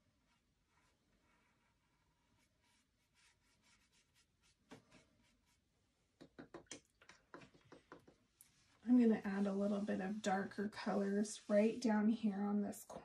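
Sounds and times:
paintbrush dabbing on canvas: 0.2 - 6.6, 7.2 - 12.1
brush tapping in plastic cup: 6.2 - 8.4.

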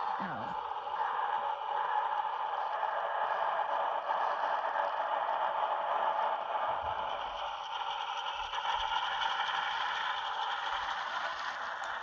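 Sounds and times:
diesel engine sound through speaker: 0.0 - 1.1.

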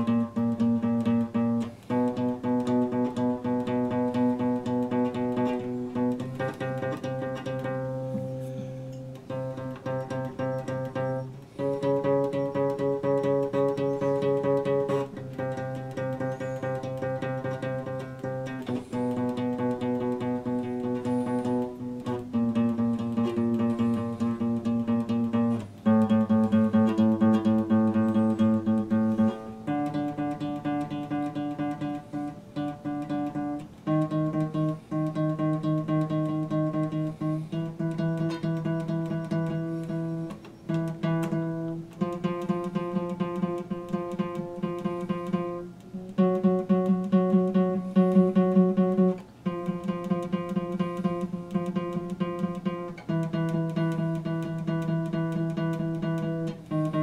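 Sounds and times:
acoustic guitar picking chords: 0.0 - 57.0.

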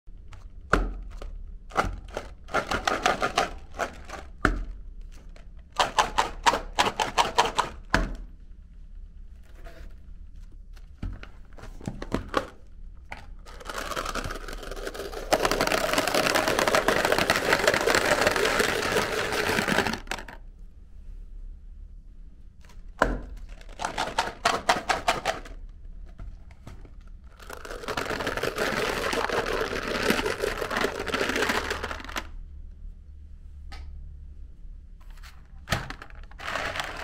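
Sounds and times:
candy rattling in plastic tubes: 1.1 - 4.4, 5.2 - 7.8, 12.4 - 20.4, 23.4 - 25.6, 27.0 - 32.4, 35.7 - 37.0
candy balls pouring into plastic tray: 2.0 - 4.4, 13.3 - 20.4, 23.4 - 25.6, 27.2 - 32.3, 35.8 - 37.0.

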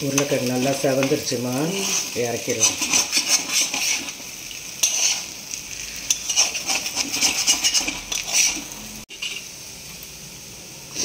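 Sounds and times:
oil sizzling: 0.0 - 11.0
metal spatula scraping pan: 0.1 - 5.4, 6.0 - 9.5.

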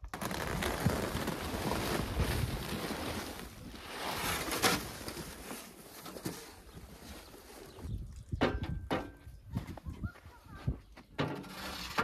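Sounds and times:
plastic sack rustling and crinkling: 0.0 - 8.3.

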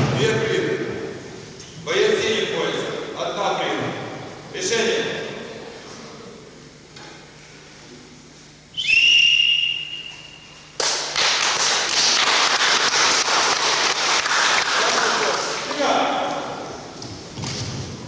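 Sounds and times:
referee's whistle blast: 8.8 - 10.6
loud dense crackling noise: 10.8 - 16.0.

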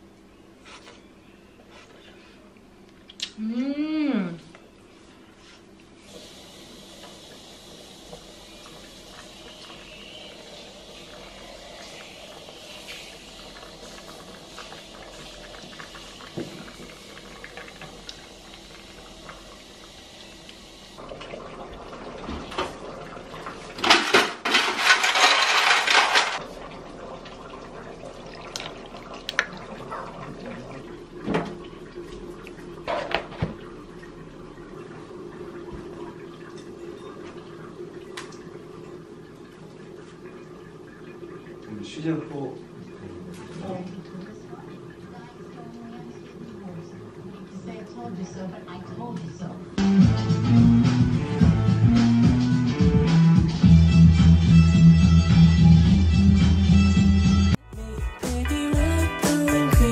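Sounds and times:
ice clinking in glass: 24.6 - 26.4.

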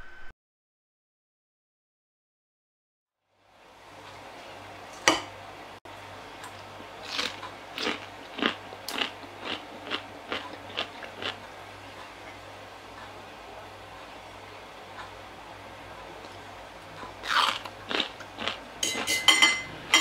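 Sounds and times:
crunching chews: 6.6 - 11.4, 17.1 - 18.6.

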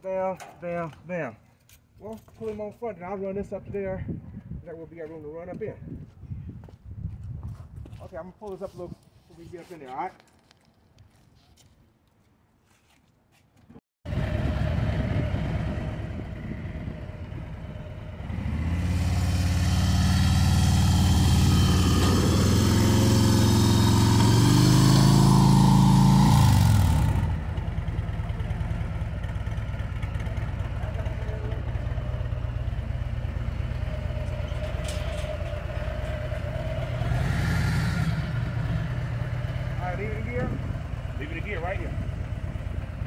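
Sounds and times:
motorcycle engine idling and revving: 14.1 - 43.0.

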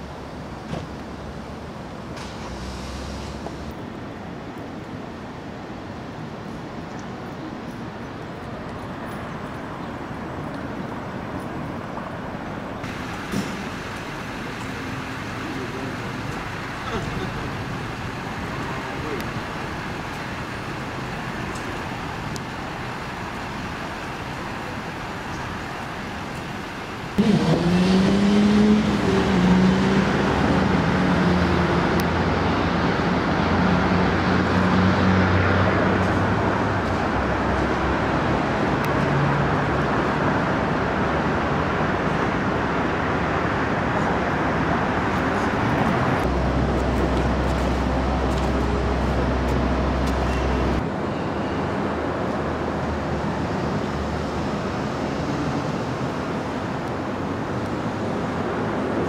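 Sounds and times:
city street traffic: 0.0 - 59.0
vehicle engine rising in pitch: 27.2 - 36.8.

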